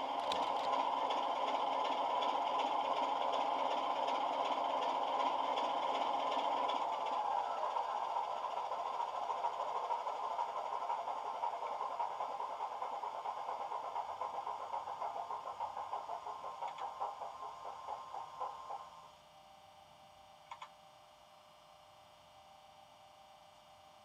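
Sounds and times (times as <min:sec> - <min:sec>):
model diesel engine sound: 0:00.0 - 0:19.0.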